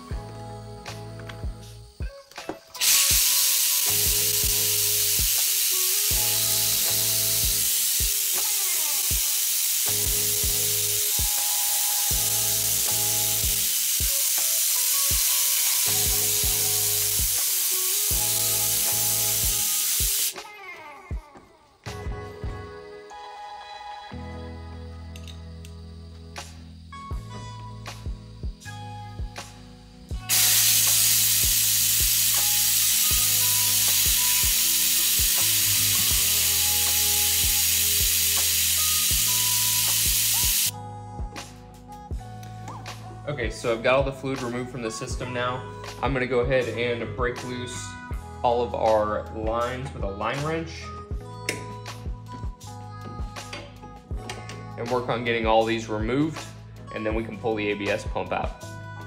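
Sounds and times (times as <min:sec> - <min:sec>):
background music: 0:00.0 - 0:59.0
vacuum brake bleeder hissing: 0:02.6 - 0:20.4, 0:29.4 - 0:40.7.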